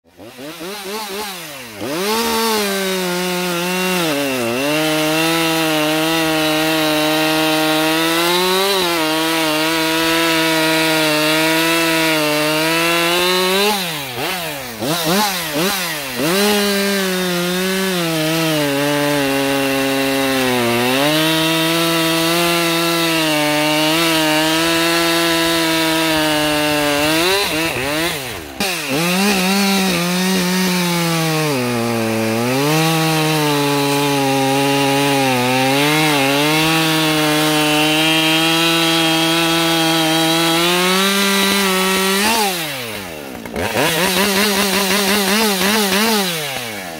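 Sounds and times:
chainsaw cutting logs: 0:00.0 - 0:46.9.

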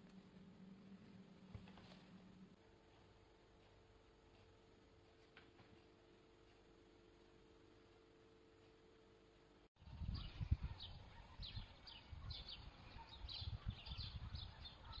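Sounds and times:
faint steady hum: 0:00.0 - 0:15.0
wind on microphone: 0:09.8 - 0:14.9
small birds chirping: 0:09.8 - 0:15.0.

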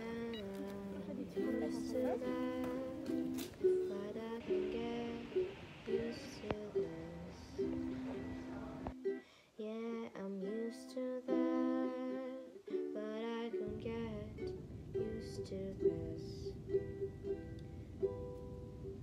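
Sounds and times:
person singing: 0:00.0 - 0:16.7
pop song with plucked strings: 0:00.0 - 0:19.0
low rumble: 0:13.6 - 0:19.0.

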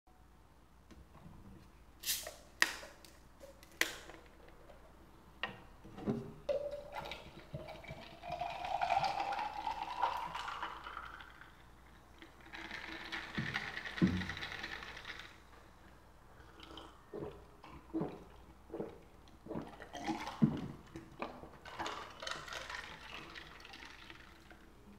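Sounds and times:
soda fizzing: 0:06.5 - 0:15.4, 0:16.4 - 0:24.8
soda pouring over ice: 0:06.6 - 0:15.4, 0:21.6 - 0:24.8.

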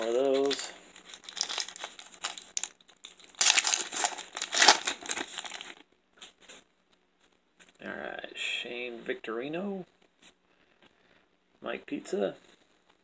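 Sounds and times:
wrapper crinkling and tearing: 0:00.0 - 0:05.9.

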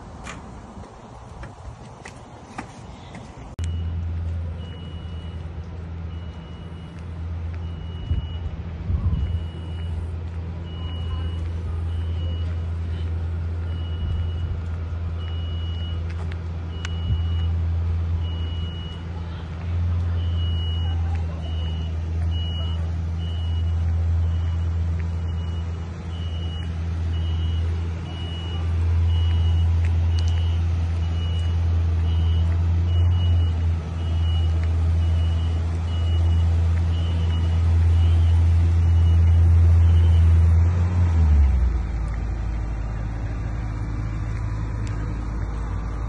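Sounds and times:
heavy vehicle engine rumble: 0:00.0 - 0:46.0
reversing alarm beeping: 0:03.6 - 0:17.6, 0:18.2 - 0:19.0, 0:20.1 - 0:40.5.

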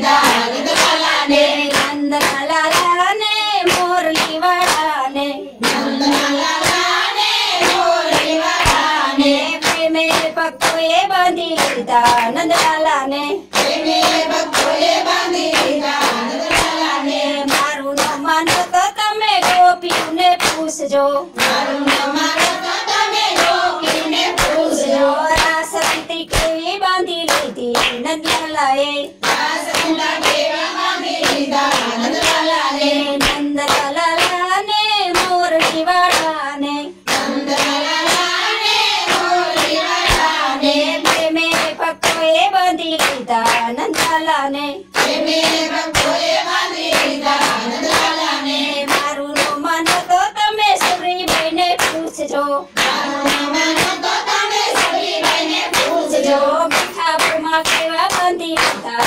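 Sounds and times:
hands clapping in rhythm: 0:00.0 - 0:59.0
women singing devotional song: 0:00.0 - 0:59.0.

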